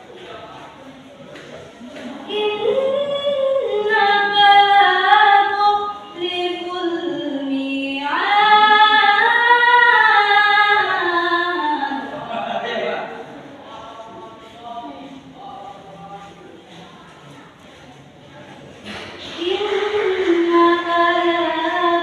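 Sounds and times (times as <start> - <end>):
girl reciting melodically: 2.0 - 12.2, 19.1 - 22.0.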